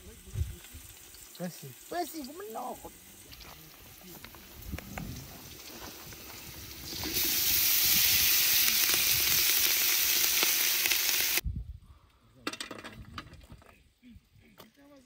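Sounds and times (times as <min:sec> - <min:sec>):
hot oil sizzling: 0:00.0 - 0:11.4.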